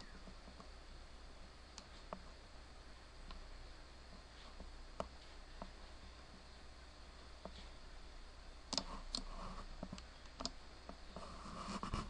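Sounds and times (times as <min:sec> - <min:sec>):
faint room noise: 0:00.0 - 0:12.0
computer mouse clicking: 0:08.7 - 0:11.2.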